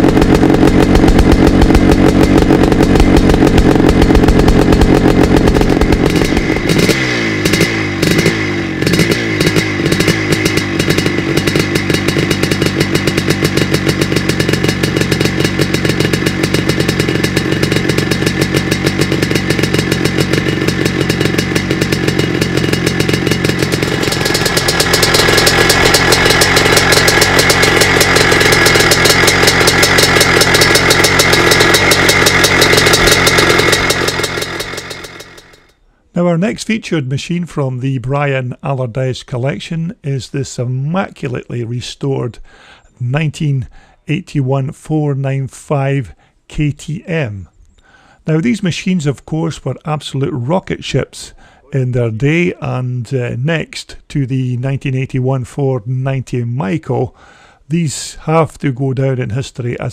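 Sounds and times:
motocross engine running: 0.0 - 35.7.

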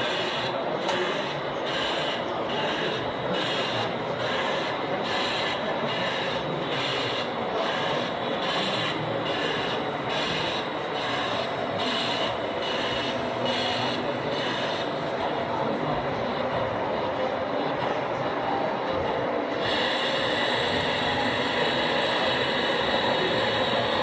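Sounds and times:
model steam locomotive chuffing: 0.0 - 24.0.

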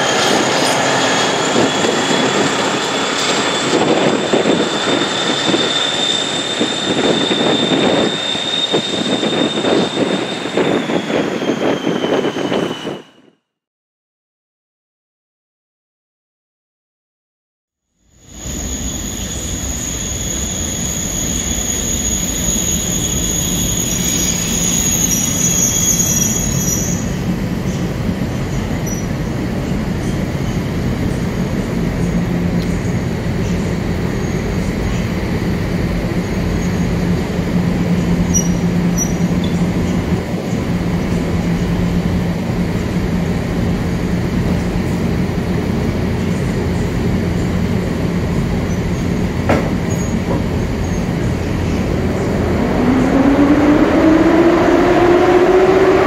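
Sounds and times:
high squeal: 0.0 - 13.4, 18.0 - 27.9, 37.8 - 41.1.

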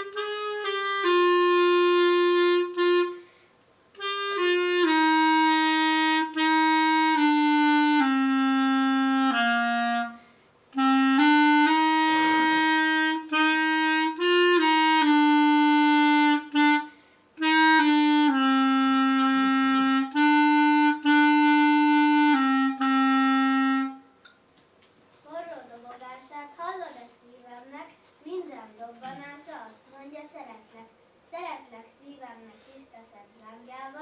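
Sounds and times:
clarinet slow melody: 0.0 - 24.2.

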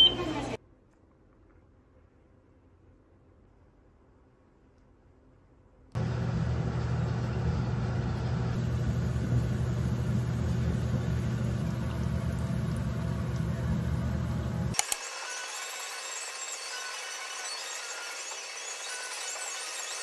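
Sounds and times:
low hum: 6.0 - 14.8
oil sizzling and bubbling: 6.0 - 20.0.

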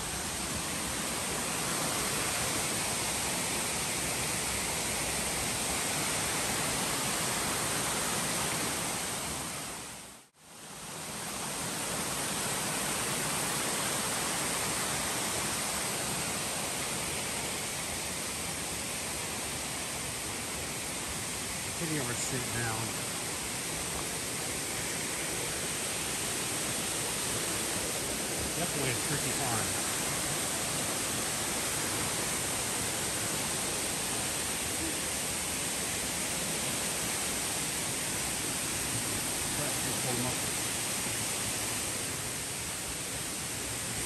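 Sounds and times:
creek rushing over rocks: 0.0 - 9.8, 10.9 - 44.0.

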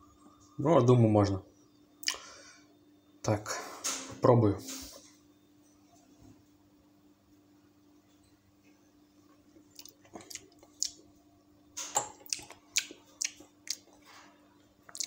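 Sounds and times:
faint steady hum: 0.0 - 15.0
lip smacks and mouth clicks: 2.0 - 2.2, 9.7 - 11.0, 12.2 - 13.9.

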